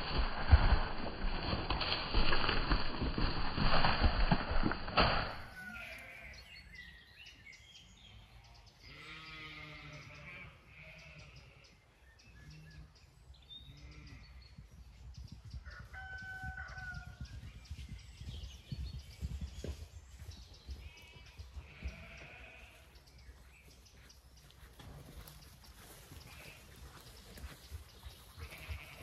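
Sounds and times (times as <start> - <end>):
distant sheep bleating: 8.9 - 11.6, 20.8 - 22.9, 28.4 - 29.0.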